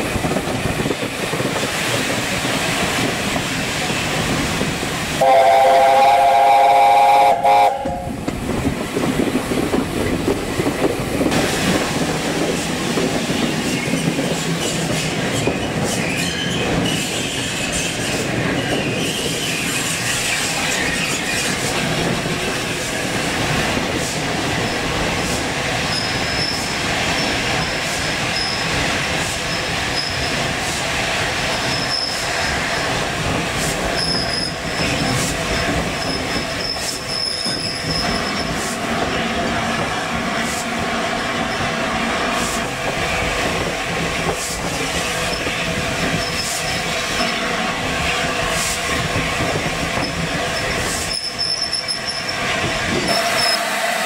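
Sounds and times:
steam locomotive chime whistle: 0:05.2 - 0:08.1, 0:53.0 - 0:54.0
high wheel squeal: 0:14.6 - 0:21.5, 0:25.9 - 0:28.7, 0:31.6 - 0:32.3, 0:34.0 - 0:38.6, 0:45.2 - 0:47.3, 0:50.0 - 0:52.4, 0:53.0 - 0:54.0.

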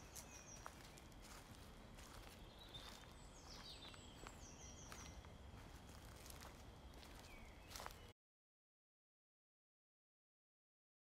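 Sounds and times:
low background noise: 0:00.0 - 0:08.1
songbirds chirping: 0:00.0 - 0:08.1.

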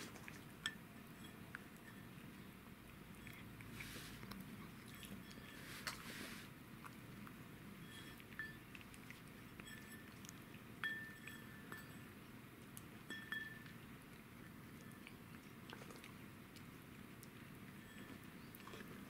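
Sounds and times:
cat chewing bone: 0:00.0 - 0:19.0
clinks against ceramic bowl: 0:00.6 - 0:02.5, 0:07.8 - 0:08.9, 0:09.5 - 0:12.1, 0:13.0 - 0:13.8, 0:17.8 - 0:18.5.

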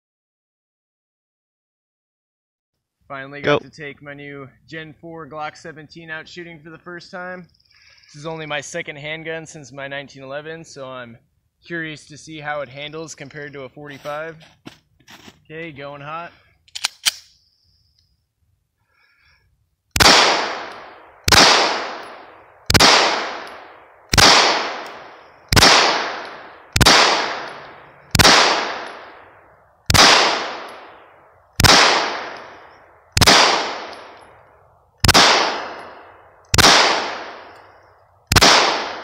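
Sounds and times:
pistol shots echoing: 0:20.0 - 0:34.4, 0:35.0 - 0:37.7, 0:38.3 - 0:39.0.

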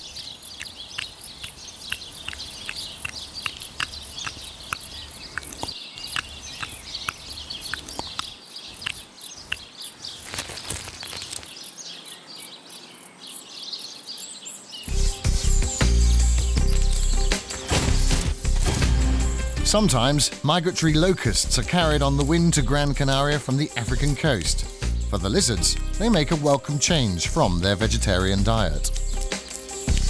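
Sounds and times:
sharp chirping ticks: 0:00.5 - 0:11.8, 0:14.2 - 0:18.2, 0:28.9 - 0:30.0
high hiss: 0:01.8 - 0:08.2
rustling: 0:09.5 - 0:11.6.

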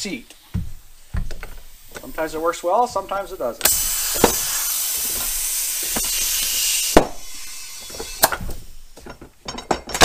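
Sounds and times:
compressed air hissing: 0:00.0 - 0:09.1
tire bead snapping: 0:03.6 - 0:10.0.

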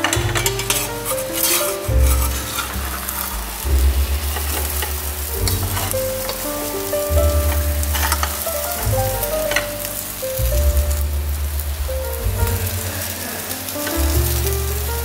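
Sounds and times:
background music with bass line: 0:00.0 - 0:15.0
spatula scraping a pan: 0:00.1 - 0:03.4
omelette sizzling in a frying pan: 0:00.1 - 0:11.9.

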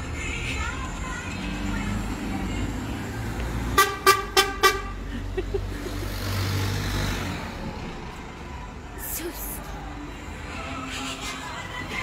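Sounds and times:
road traffic rumble: 0:00.0 - 0:12.0
vehicle horn toots: 0:03.8 - 0:05.0.

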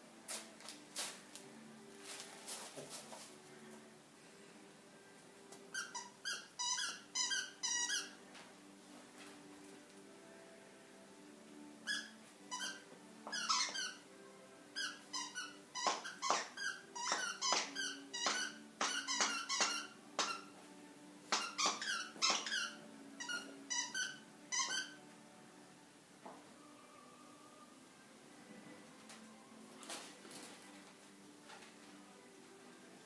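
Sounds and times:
dog toy squeaking: 0:05.7 - 0:08.2, 0:11.8 - 0:14.0, 0:14.8 - 0:20.5, 0:21.3 - 0:25.0.

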